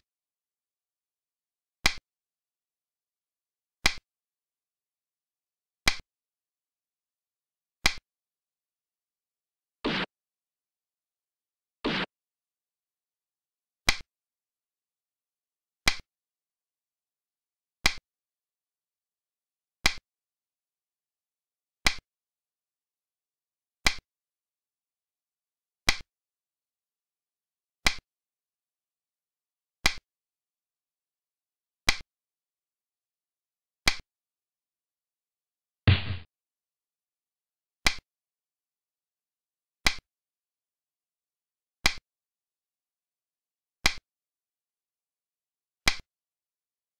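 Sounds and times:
game piece clicking down: 3.8 - 4.0.

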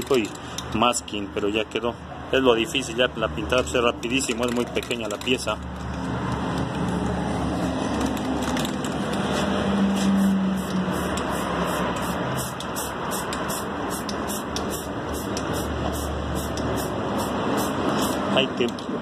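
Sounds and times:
traffic noise: 0.0 - 19.0
spray can rattling: 4.0 - 7.2, 7.9 - 18.3.

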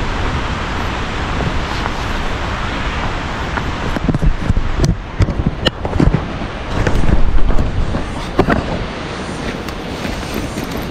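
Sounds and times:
waterfall rushing: 0.0 - 10.9.

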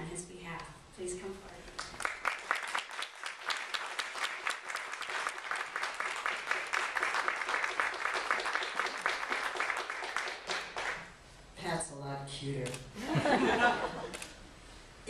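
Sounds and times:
audience applauding: 1.7 - 11.1.

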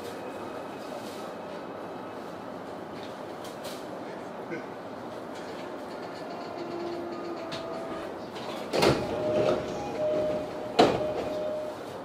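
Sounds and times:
electric train running noise: 5.4 - 11.9.

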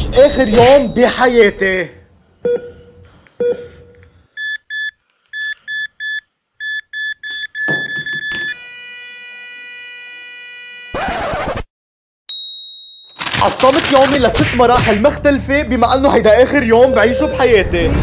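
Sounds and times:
heart monitor beeps: 2.4 - 8.6.

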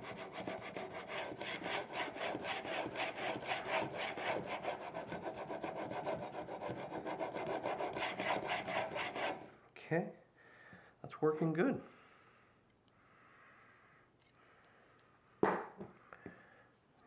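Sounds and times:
plane blade scraping on whetstone: 0.0 - 9.5.

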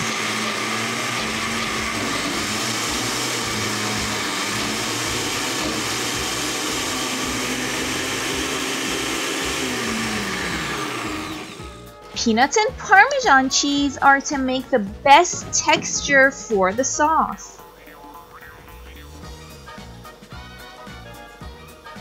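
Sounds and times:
blender motor running: 0.0 - 12.0.

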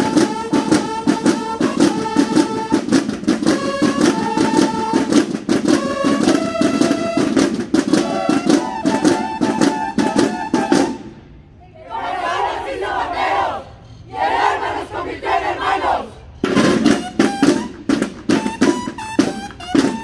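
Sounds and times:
bugles sounding held notes: 0.0 - 11.1, 14.5 - 20.0
snare drums beating fast: 0.0 - 11.1, 16.4 - 20.0.

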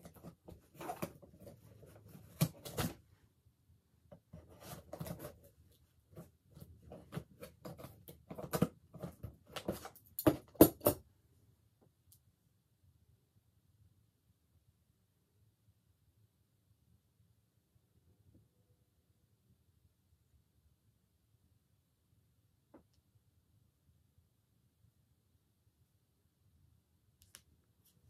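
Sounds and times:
scratching at cardboard box: 4.3 - 10.0.

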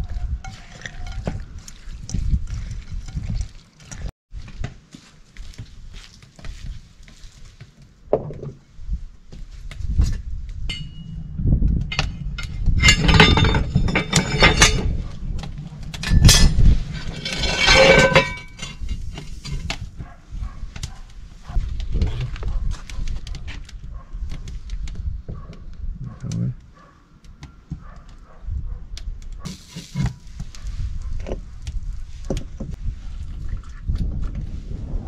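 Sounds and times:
glass and dishes clinking: 10.7 - 11.1, 11.9 - 15.0, 17.2 - 19.0
iron pans clanking on stove: 11.9 - 15.1, 16.0 - 19.6.

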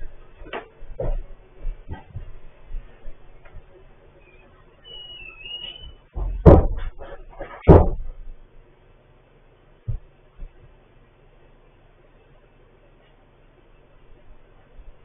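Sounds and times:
faint high squeak: 4.2 - 6.1
loud thumps: 6.1 - 8.3.

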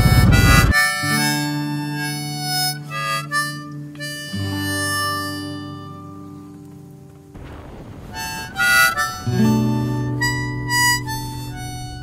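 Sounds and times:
motorbike ride noise: 0.0 - 0.8
harmonica music: 0.0 - 7.2, 8.2 - 12.0.

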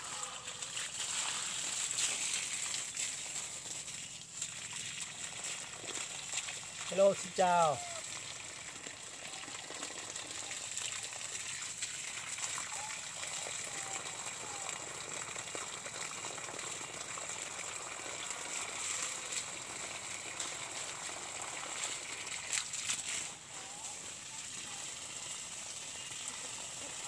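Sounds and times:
water gushing from hose: 0.0 - 27.0.

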